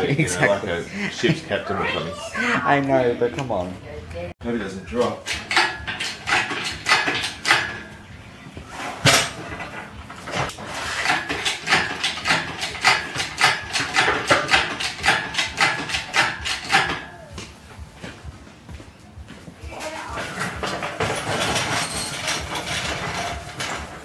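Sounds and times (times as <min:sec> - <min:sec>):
engine stand clicking: 0:05.2 - 0:07.9, 0:10.4 - 0:17.1.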